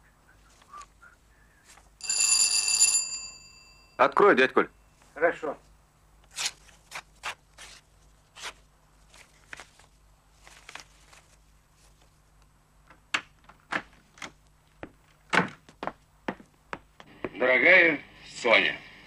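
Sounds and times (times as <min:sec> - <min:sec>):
paper envelope tearing: 0:06.3 - 0:11.4.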